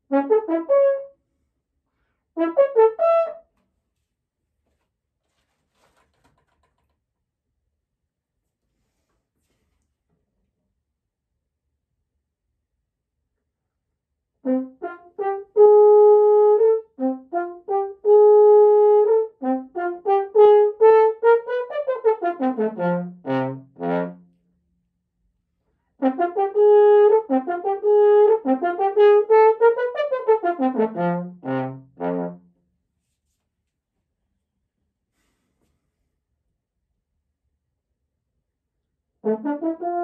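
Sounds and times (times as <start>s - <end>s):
solo french horn playing: 0.0s - 1.2s, 2.4s - 3.4s, 14.4s - 24.3s, 26.0s - 32.4s, 39.2s - 40.0s.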